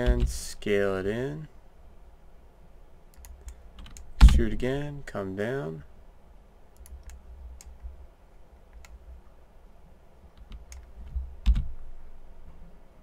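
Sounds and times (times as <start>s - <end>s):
low steady hum: 0.0s - 13.0s
keyboard and mouse clicking: 3.1s - 4.4s, 6.8s - 7.8s, 8.7s - 9.0s, 10.3s - 11.8s.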